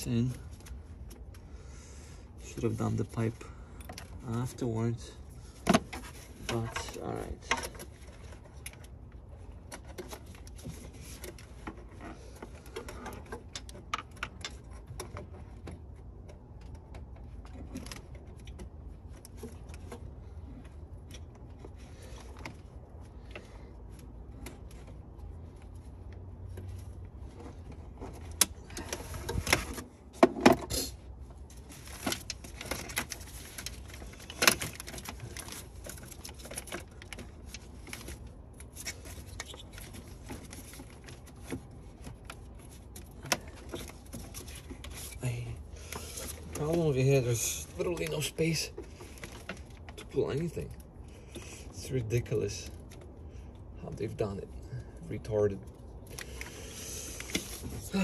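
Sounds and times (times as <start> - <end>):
tools rattling in engine bay: 27.2 - 31.0.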